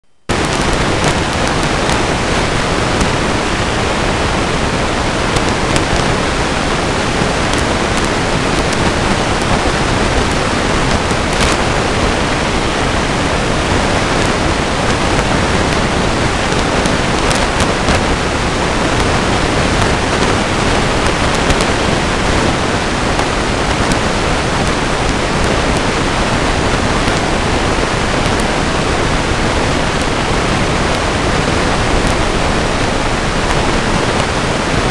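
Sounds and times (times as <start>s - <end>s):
steady loud hiss: 0.1s - 34.9s.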